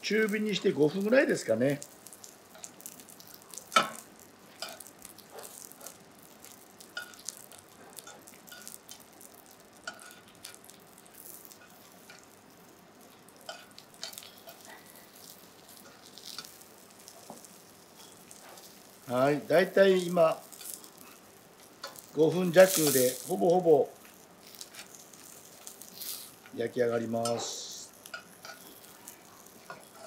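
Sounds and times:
oil sizzling in frying pan: 0.0 - 30.0
metal tongs tapping pan: 7.0 - 7.4, 9.8 - 10.6, 21.8 - 22.1, 27.2 - 28.9.

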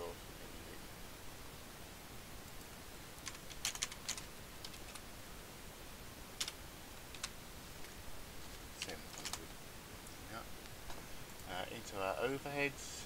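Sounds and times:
typing on keyboard: 3.2 - 5.0, 6.4 - 7.4, 8.8 - 9.4.

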